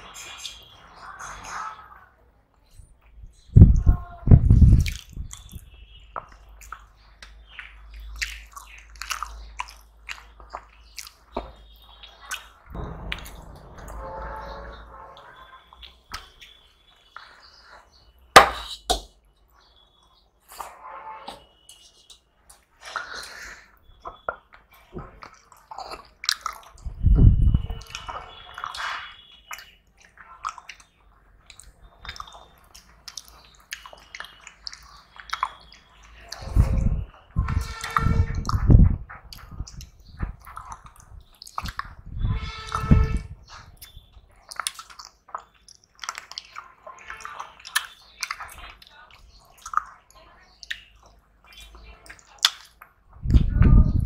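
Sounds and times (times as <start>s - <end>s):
wet squishing and smacking eating: 4.4s - 13.5s, 21.7s - 42.8s, 43.4s - 53.4s
person chewing: 4.7s - 13.5s, 21.7s - 26.9s, 27.6s - 36.5s, 39.3s - 42.0s, 43.4s - 53.0s
loud low thump: 12.7s - 14.0s.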